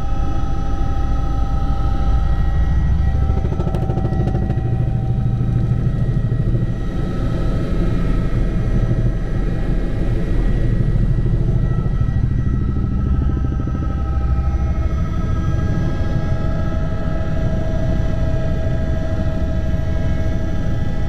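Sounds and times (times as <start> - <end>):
helicopter rotor beat: 0.0 - 21.0
turbine whine: 0.0 - 21.0.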